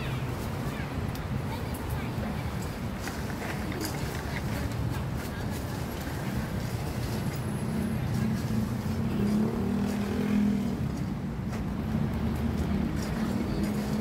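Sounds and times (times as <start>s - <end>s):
road traffic: 0.0s - 14.0s.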